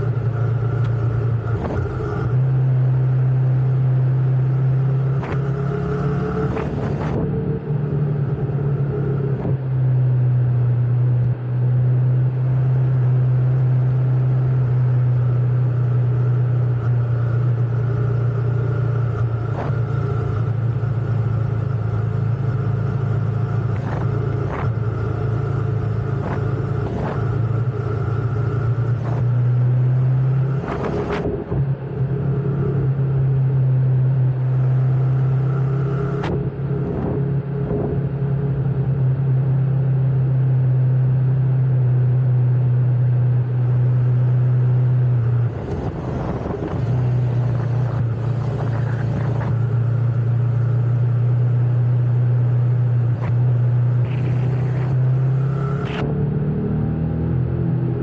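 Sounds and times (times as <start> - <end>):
motorcycle engine running: 0.0 - 11.5, 12.1 - 41.9, 42.8 - 56.2.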